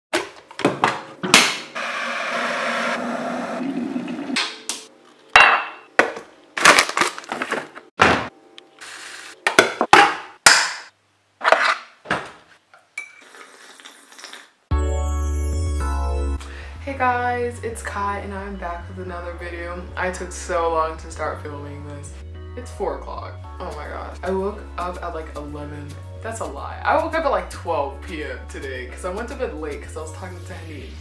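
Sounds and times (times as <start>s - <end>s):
water running: 3.3s - 4.9s
mug and kettle clinking: 5.4s - 5.8s
person slurping a sip: 13.2s - 14.6s.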